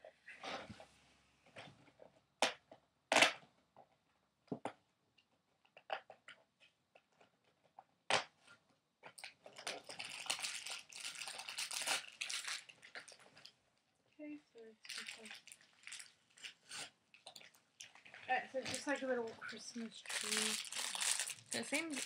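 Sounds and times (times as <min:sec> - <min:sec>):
packaging crinkling and tearing: 0:09.2 - 0:13.5, 0:14.8 - 0:18.0, 0:18.6 - 0:22.0.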